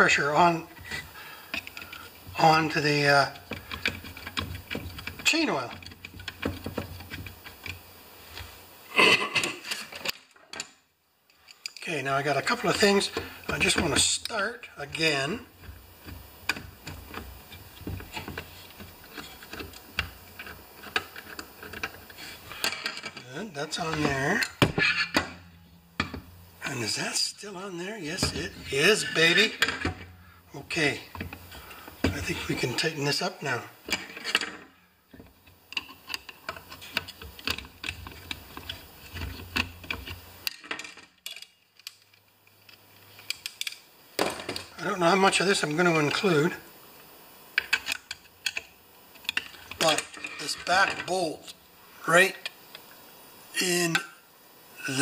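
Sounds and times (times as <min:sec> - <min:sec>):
screwdriver clicking on metal parts: 0:01.5 - 0:08.5, 0:15.6 - 0:23.2, 0:35.7 - 0:43.8.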